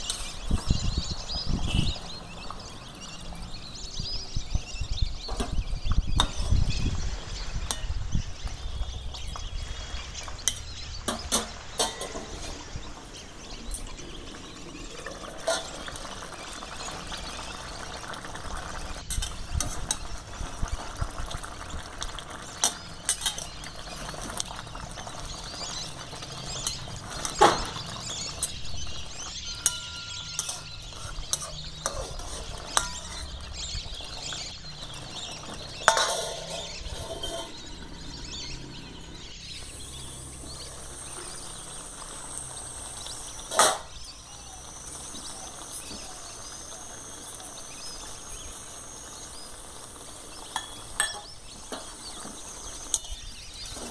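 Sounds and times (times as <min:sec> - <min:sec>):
food simmering in a pan: 0:00.0 - 0:05.2, 0:05.8 - 0:53.9
ladle clanking on pan: 0:10.4 - 0:12.7, 0:29.5 - 0:33.5, 0:35.4 - 0:37.7
ladle clinking and scraping pan: 0:11.2 - 0:17.0, 0:22.6 - 0:24.0, 0:26.0 - 0:38.0, 0:50.4 - 0:53.9.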